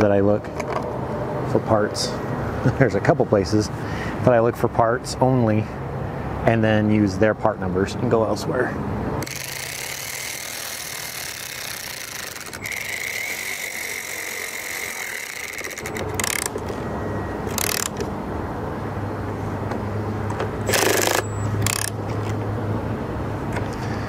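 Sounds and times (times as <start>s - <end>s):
cordless screwdriver whining: 9.2s - 16.8s, 17.4s - 18.1s, 20.7s - 22.3s.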